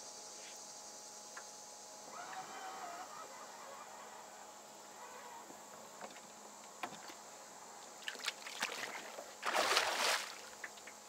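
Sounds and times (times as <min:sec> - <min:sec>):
faint knocks in a boat: 0:06.0 - 0:07.2
fish splashing into water: 0:08.0 - 0:10.6.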